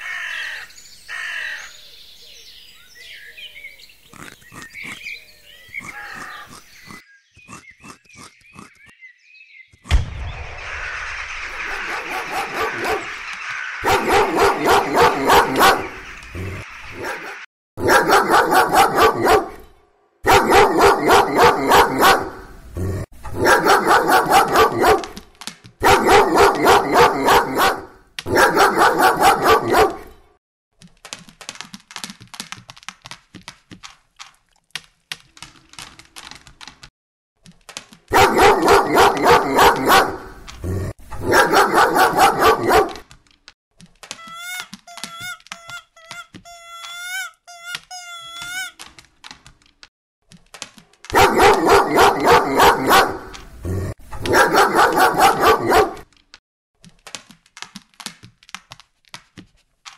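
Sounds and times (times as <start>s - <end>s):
dog barking rapidly: 11.8s - 13.2s, 13.8s - 16.0s, 16.9s - 19.6s, 20.2s - 22.6s, 23.3s - 25.2s, 25.8s - 30.1s, 38.1s - 40.4s, 41.2s - 43.0s, 51.1s - 53.4s, 54.2s - 56.1s.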